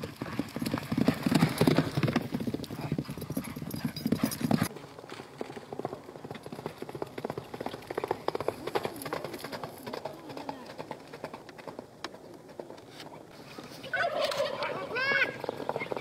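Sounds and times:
horses galloping on dirt: 0.0 - 16.0.

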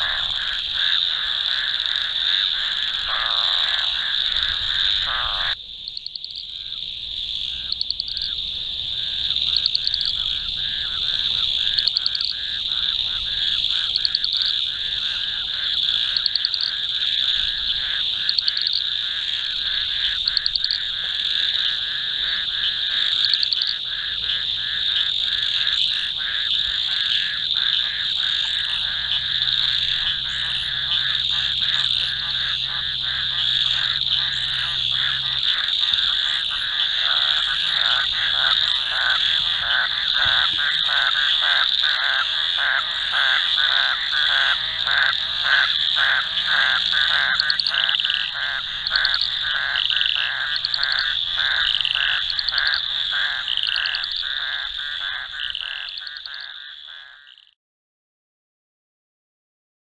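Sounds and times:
frog chirps: 0.0 - 57.6
frogs trilling: 0.0 - 57.6.

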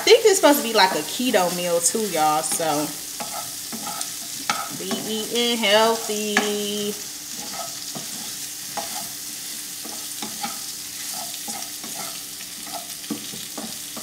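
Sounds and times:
food sizzling in a skillet: 0.0 - 14.0
utensil tapping and scraping pan: 2.4 - 5.3, 5.9 - 6.7, 7.3 - 14.0.

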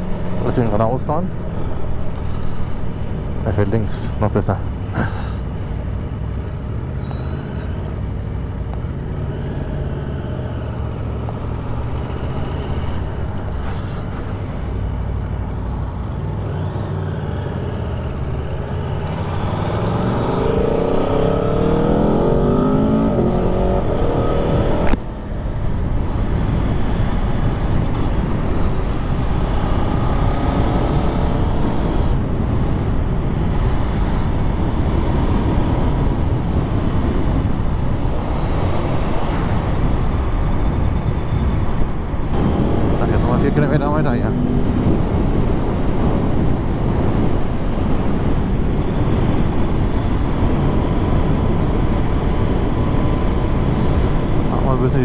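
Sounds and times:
motorcycle engine accelerating: 16.4 - 25.0.

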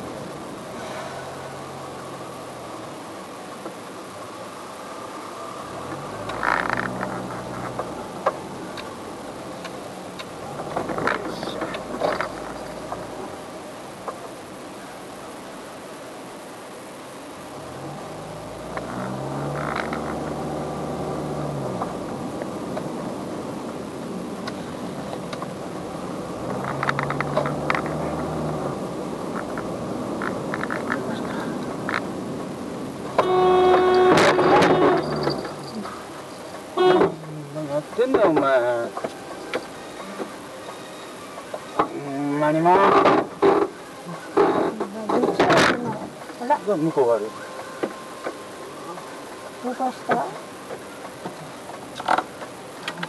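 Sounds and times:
car engine and road hum: 0.0 - 53.0
croaky creak: 6.2 - 7.9, 10.6 - 13.1, 18.7 - 20.7, 26.4 - 28.4, 29.3 - 32.1, 33.7 - 36.0, 51.9 - 53.0.

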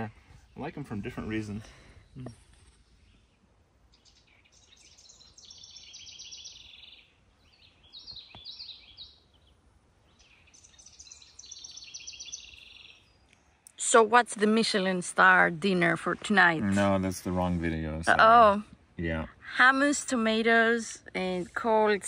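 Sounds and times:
songbirds singing: 0.0 - 16.6.

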